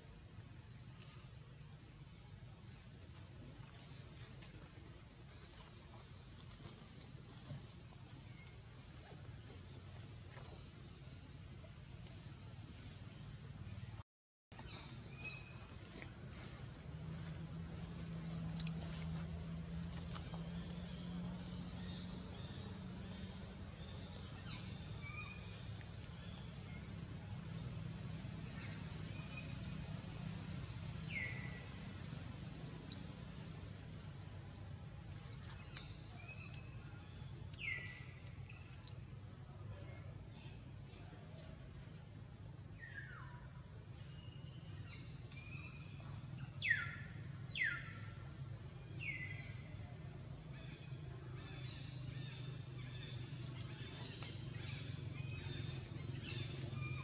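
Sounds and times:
low steady rumble: 0:14.6 - 0:57.0.

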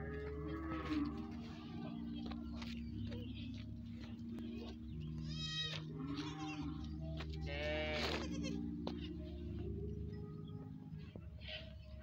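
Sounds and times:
goat kid bleating: 0:04.4 - 0:09.1.

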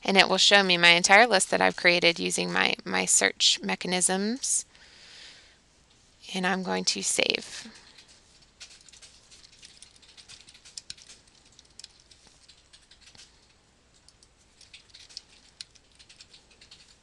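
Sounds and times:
faint keyboard typing: 0:07.2 - 0:17.0.

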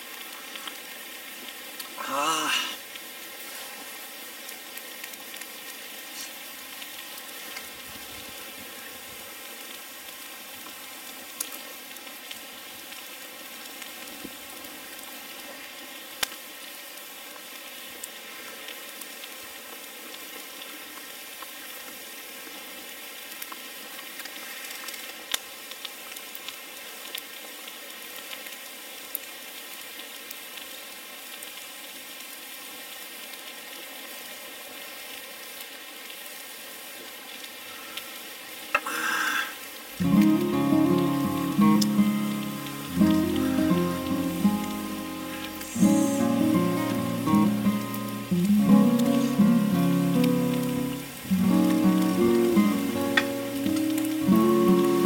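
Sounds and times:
sizzling hiss: 0:00.0 - 0:55.0
burning log popping: 0:40.0 - 0:55.0.

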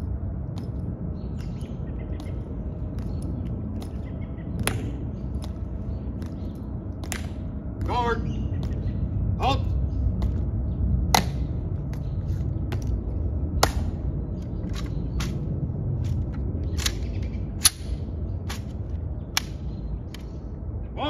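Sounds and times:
low steady rumble: 0:00.0 - 0:21.0
heels clicking on stone: 0:00.5 - 0:09.0, 0:10.1 - 0:13.0.

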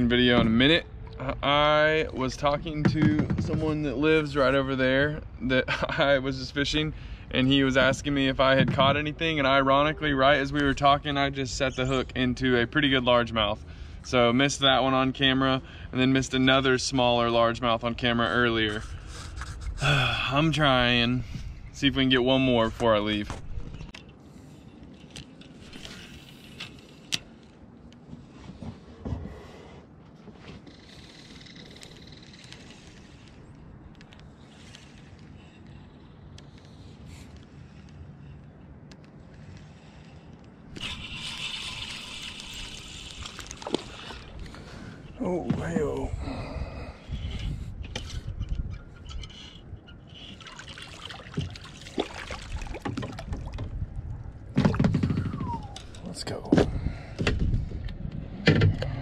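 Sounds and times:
wind and water hiss: 0:30.7 - 0:54.6
fishing reel clicks: 0:40.7 - 0:44.2
fish splashing in water: 0:50.4 - 0:53.6.

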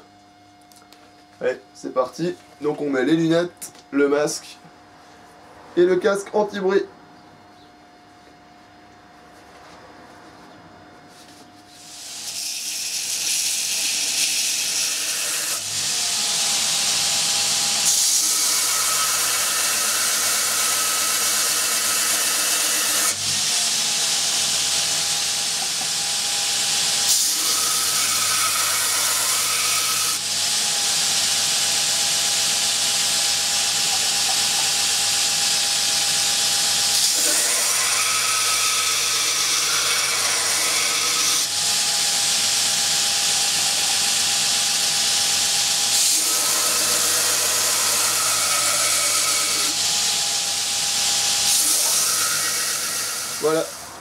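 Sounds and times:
belt grinder grinding blade: 0:11.8 - 0:54.0.

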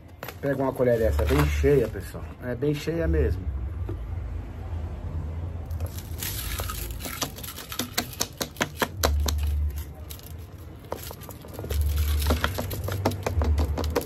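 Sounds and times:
powder rattling through funnel: 0:05.8 - 0:14.0
metal spoon tapping plastic funnel: 0:07.0 - 0:09.5.

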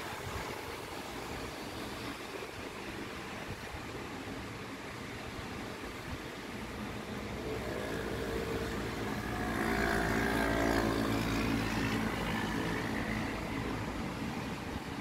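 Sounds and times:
car passing on wet road: 0:05.9 - 0:15.0.

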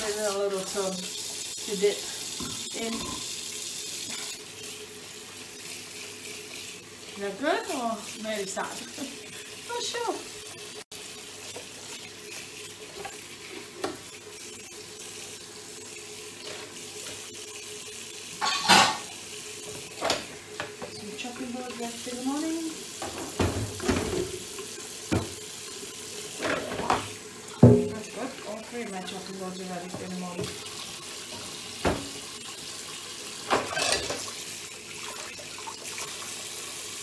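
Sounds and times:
dishes and utensils clattering: 0:18.4 - 0:19.1, 0:23.0 - 0:24.4, 0:26.4 - 0:28.0, 0:33.5 - 0:34.3.

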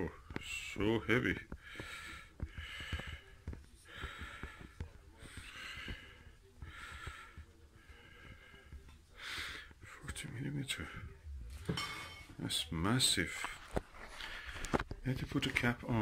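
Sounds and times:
person breathing: 0:01.6 - 0:09.8, 0:13.4 - 0:15.0.

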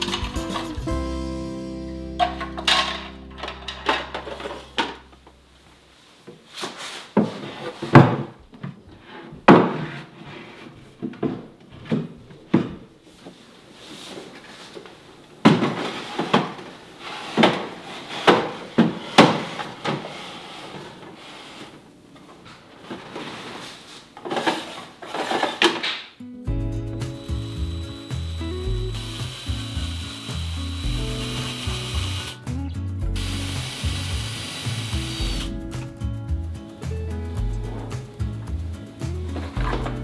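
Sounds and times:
plastic drawers clicking and sliding: 0:22.6 - 0:25.9.

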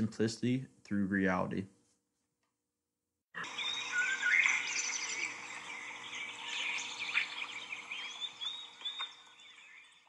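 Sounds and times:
songbirds chirping and singing: 0:03.4 - 0:10.0.

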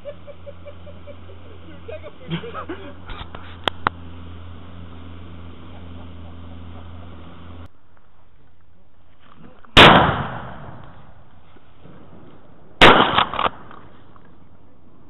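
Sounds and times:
outboard motor running: 0:00.3 - 0:07.7
shotgun shots echoing: 0:09.8 - 0:11.0, 0:12.8 - 0:13.8.

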